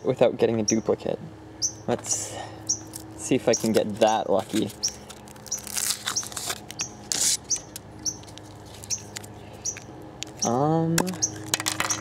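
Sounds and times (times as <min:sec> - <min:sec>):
bird chirping: 0:00.0 - 0:01.0, 0:01.6 - 0:02.0, 0:02.6 - 0:12.0
chocolate shell crackling: 0:03.8 - 0:09.3
plastic capsule clicks: 0:10.2 - 0:12.0.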